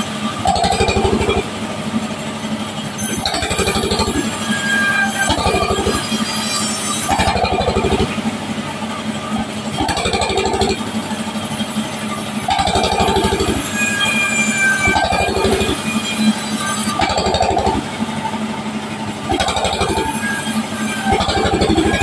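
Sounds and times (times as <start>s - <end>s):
saw blade ripping wood: 19.3s - 22.0s.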